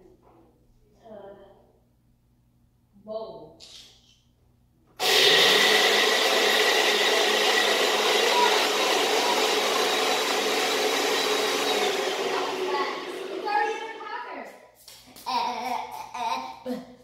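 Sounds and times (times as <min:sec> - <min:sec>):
blender motor whining: 0:05.0 - 0:14.0.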